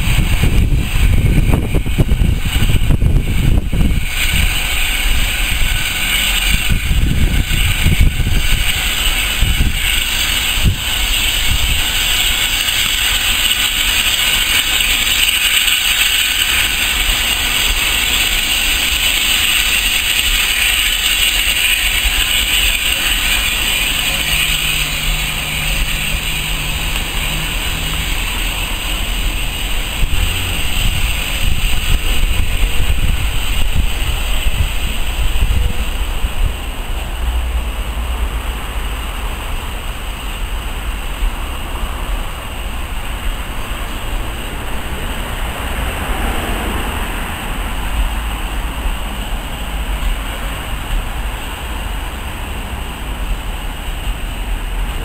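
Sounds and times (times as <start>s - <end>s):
wind on microphone: 0.0s - 10.0s, 29.1s - 36.9s
steam train passing: 0.0s - 55.0s.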